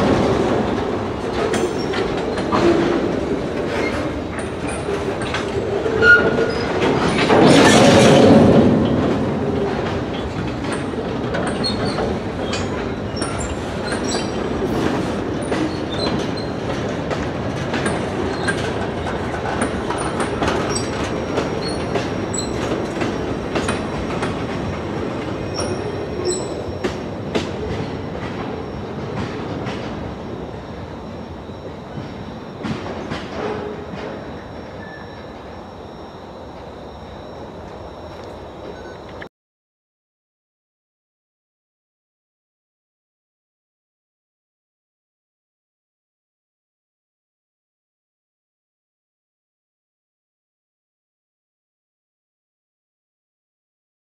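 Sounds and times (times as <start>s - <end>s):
train wheels clacking over rail joints: 0.0s - 35.3s
train rushing past: 0.0s - 39.2s
high-pitched wheel squeals: 5.9s - 6.8s.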